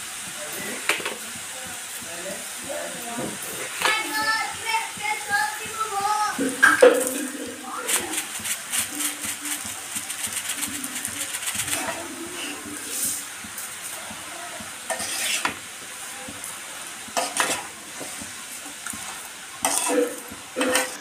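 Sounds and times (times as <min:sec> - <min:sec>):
metal spoon scraping a pan: 0:14.8 - 0:15.6, 0:17.2 - 0:17.8, 0:19.6 - 0:21.0.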